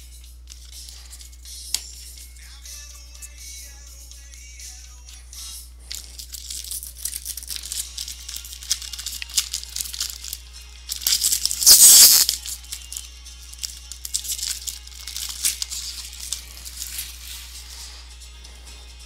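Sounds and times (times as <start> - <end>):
cards shuffled by hand: 0.5 - 1.9, 5.9 - 18.1
card wrapper crinkling: 5.9 - 18.0
wrapper torn open with a rip: 6.4 - 13.0, 13.6 - 17.4.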